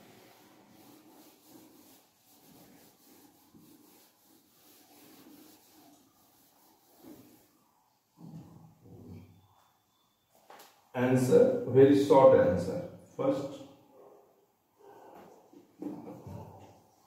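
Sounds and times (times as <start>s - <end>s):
duster rubbing on whiteboard: 0.0s - 8.3s.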